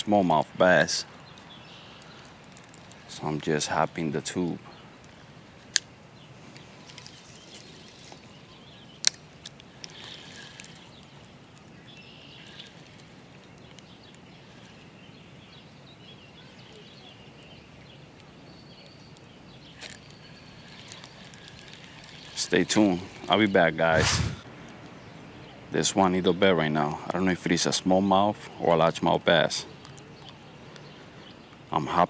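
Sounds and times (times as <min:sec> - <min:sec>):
faint bird chirps: 0:09.7 - 0:24.0.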